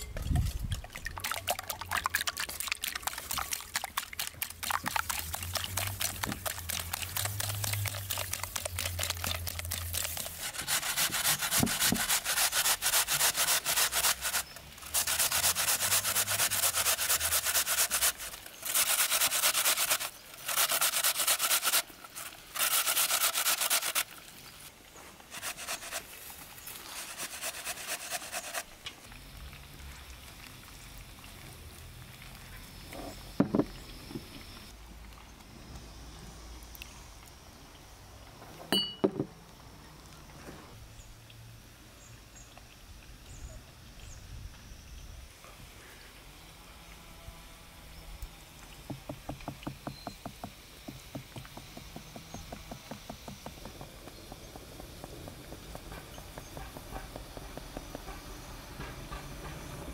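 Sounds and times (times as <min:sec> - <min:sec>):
scraping strokes of food preparation: 0:04.9 - 0:28.8.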